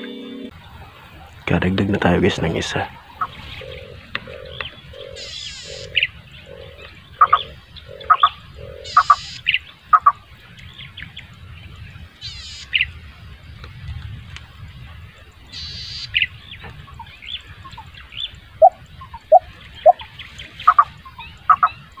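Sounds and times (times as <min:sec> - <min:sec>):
high buzzy bird trills: 0:00.0 - 0:13.1, 0:14.6 - 0:22.0
bird low hoots: 0:02.4 - 0:10.2, 0:12.2 - 0:13.0, 0:15.2 - 0:22.0
bird short high chirps: 0:07.2 - 0:10.2.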